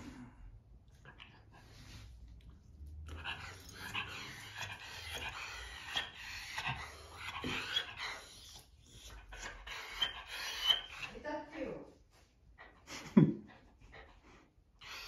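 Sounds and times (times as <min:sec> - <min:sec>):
dog whining: 0:03.1 - 0:11.1.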